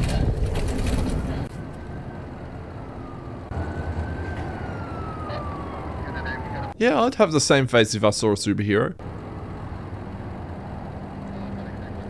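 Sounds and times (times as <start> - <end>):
emergency siren sliding down: 1.5 - 6.8, 9.0 - 11.2.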